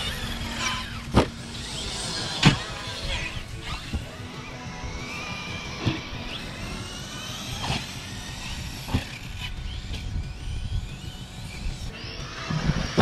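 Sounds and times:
electric toy car motor whining: 0.0s - 13.0s
toy car hitting the ground: 2.2s - 3.1s.

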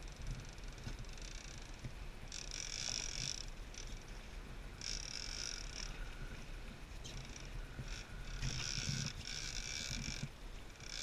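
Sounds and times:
steady low hum: 0.0s - 11.0s
fishing reel buzzing: 0.1s - 4.1s, 4.8s - 6.2s, 7.2s - 11.0s.

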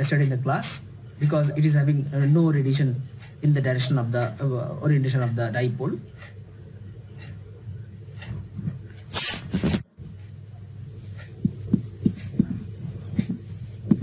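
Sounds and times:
low steady hum: 0.0s - 14.0s
marker writing on whiteboard: 10.2s - 14.0s.

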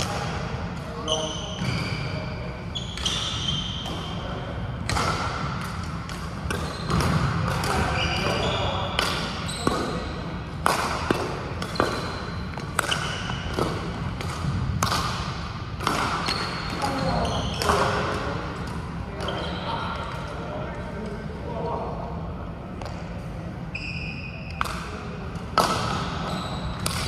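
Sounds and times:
shoes squeaking on floor: 1.0s - 4.3s, 6.6s - 7.1s, 7.9s - 8.9s, 9.5s - 10.0s, 16.2s - 17.8s, 19.2s - 19.9s, 23.7s - 24.4s, 26.2s - 26.9s
rackets hitting shuttlecocks: 4.8s - 17.0s, 24.5s - 27.0s.

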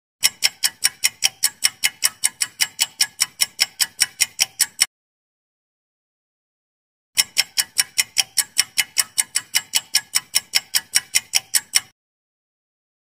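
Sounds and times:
clock ticking quickly: 0.2s - 4.9s, 7.2s - 12.0s.

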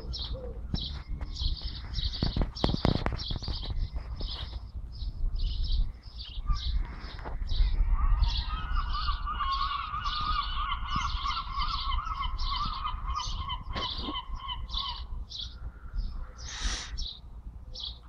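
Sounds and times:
gull calls: 7.6s - 16.8s.

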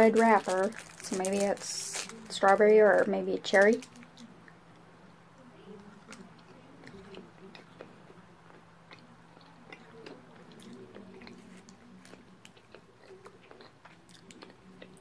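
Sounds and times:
person chewing candy: 6.0s - 15.0s.

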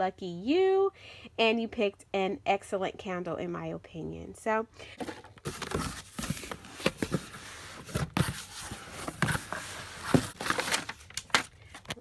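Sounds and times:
cardboard flaps rustling and scraping: 5.0s - 11.5s.

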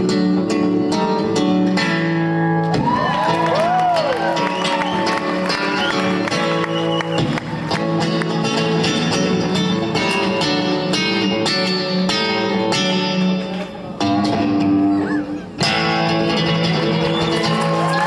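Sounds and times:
amplified acoustic guitar strumming: 0.0s - 17.9s.

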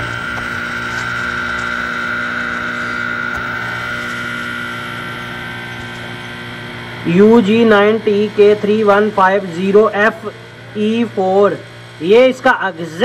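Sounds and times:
high-pitched whine: 0.0s - 13.0s
steady hum: 0.0s - 13.0s
man speaking: 7.0s - 13.0s.

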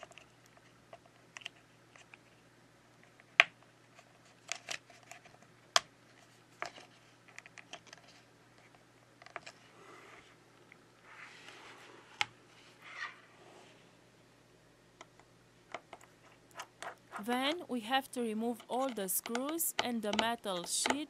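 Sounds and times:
plastic clicks and taps: 18.6s - 21.0s.

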